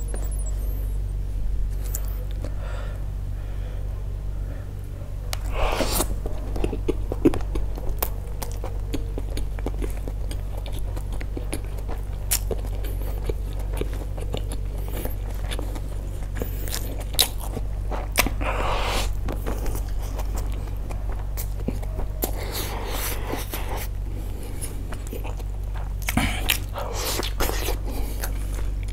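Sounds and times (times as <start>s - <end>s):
steady low hum: 0.0s - 28.9s
close chewing with mouth clicks: 5.3s - 28.9s.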